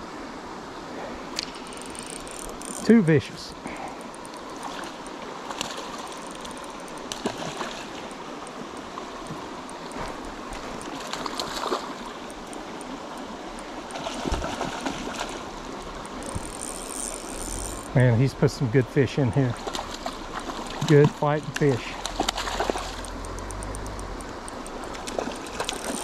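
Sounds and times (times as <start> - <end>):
creek rushing: 0.0 - 26.0
fish splashing at surface: 21.8 - 23.8, 24.4 - 26.0.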